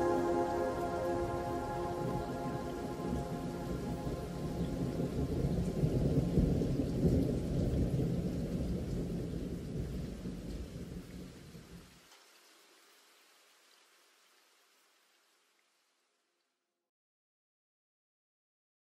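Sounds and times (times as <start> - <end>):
thunder rumbling: 0.0 - 11.2
rain: 0.0 - 16.5.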